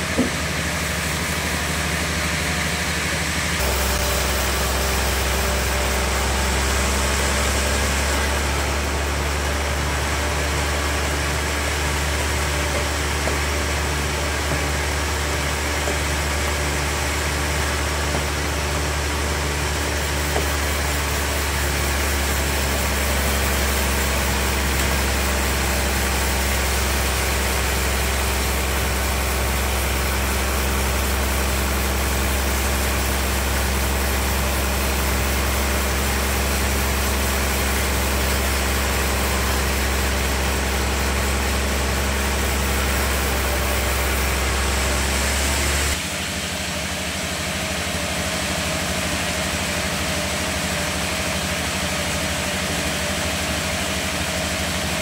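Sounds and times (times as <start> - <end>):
saw blade cutting log: 0.0 - 2.7, 3.5 - 46.1
band saw motor hum: 0.0 - 46.5.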